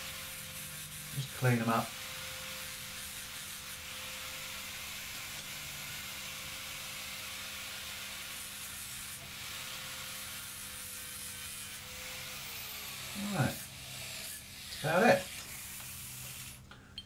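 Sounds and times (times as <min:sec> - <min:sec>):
grinding disc hissing on metal: 0:00.0 - 0:16.7.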